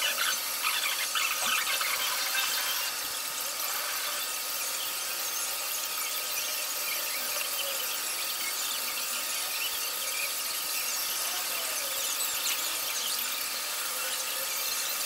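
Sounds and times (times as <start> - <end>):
foam brush squeaking on wood: 0.0 - 4.4.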